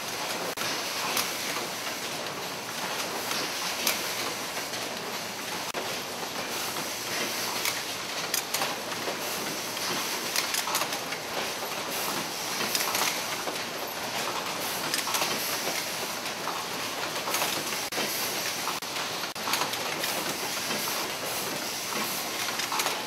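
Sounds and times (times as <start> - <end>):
machine clattering clicks: 6.7 - 23.0.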